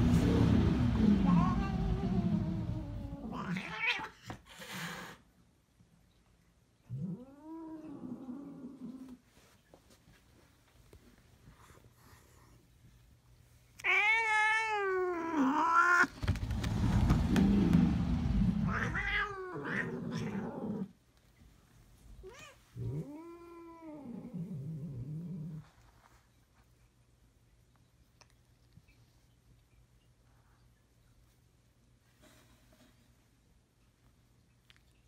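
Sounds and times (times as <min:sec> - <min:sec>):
cat yowling: 0:01.0 - 0:04.2, 0:13.8 - 0:16.1, 0:18.6 - 0:20.9
cats scuffling: 0:16.0 - 0:19.0.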